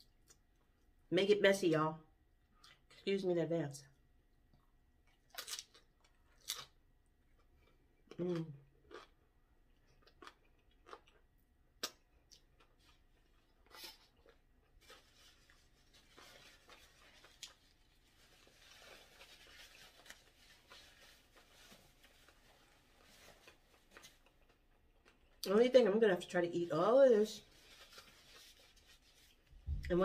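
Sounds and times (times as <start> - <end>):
paper napkin rustling: 27.4 - 29.5.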